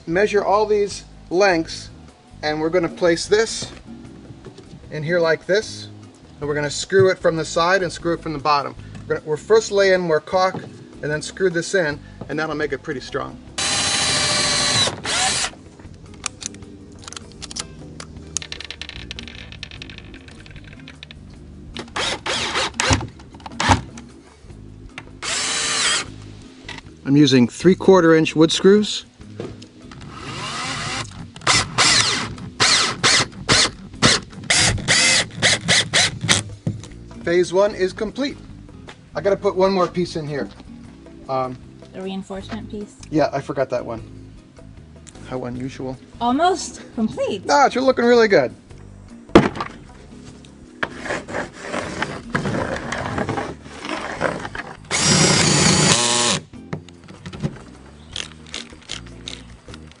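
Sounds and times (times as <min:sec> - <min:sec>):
cordless drill whining: 0:13.6 - 0:15.6, 0:21.8 - 0:23.0, 0:25.2 - 0:26.1, 0:30.0 - 0:36.4, 0:54.9 - 0:56.5
scraping on plywood: 0:50.8 - 0:54.8.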